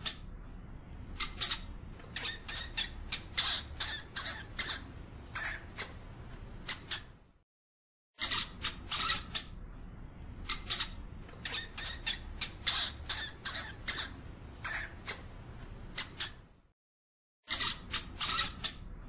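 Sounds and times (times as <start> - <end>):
hamster squeaking: 0.0 - 0.3, 1.2 - 6.0, 6.6 - 7.2, 8.2 - 9.6, 10.4 - 15.3, 15.9 - 16.5, 17.5 - 18.9.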